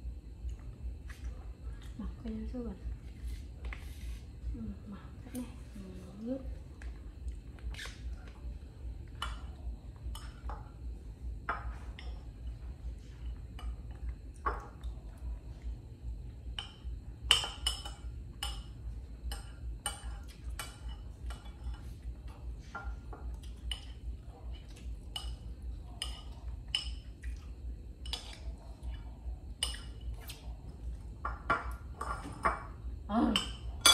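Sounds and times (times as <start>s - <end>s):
low steady hum: 0.0s - 33.9s
spoon clinking against a bowl: 16.6s - 21.8s, 25.1s - 27.1s, 29.6s - 30.2s, 33.3s - 33.9s.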